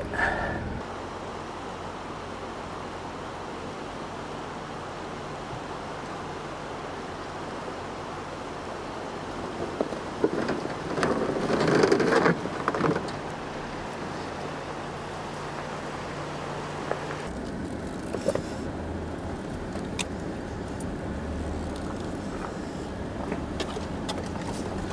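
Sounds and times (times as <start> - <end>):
vehicle engine running low: 0.0 - 24.9
tires scraping over rock: 8.5 - 24.9.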